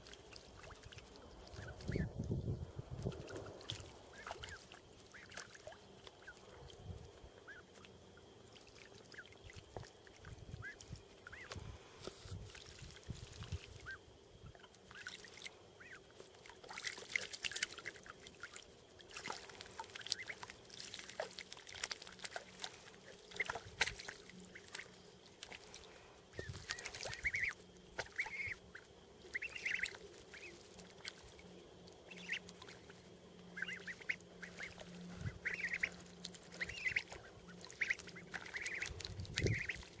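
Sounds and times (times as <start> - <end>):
ducks splashing in water: 0.0 - 40.0
ducklings short high calls: 1.5 - 2.1, 3.7 - 6.4, 7.4 - 7.9, 10.5 - 11.6, 13.7 - 16.1, 19.3 - 21.3, 23.0 - 24.9, 25.5 - 31.2, 32.1 - 32.7, 33.5 - 40.0.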